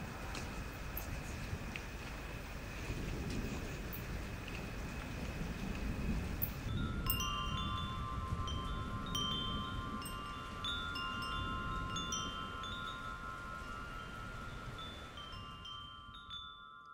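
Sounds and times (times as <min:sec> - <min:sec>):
wind chimes ringing: 0:06.4 - 0:16.9.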